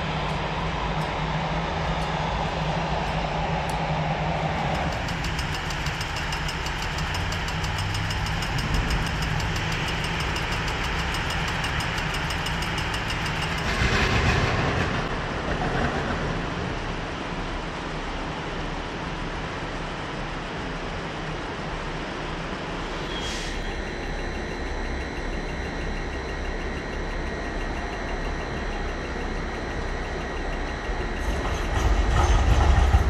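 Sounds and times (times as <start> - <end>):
tram rumble: 0.0 - 20.7, 21.4 - 33.0
rapid even ticking: 4.6 - 13.8, 23.8 - 31.8
rush of noise: 12.7 - 20.2
wheels clattering on rail: 31.2 - 33.0.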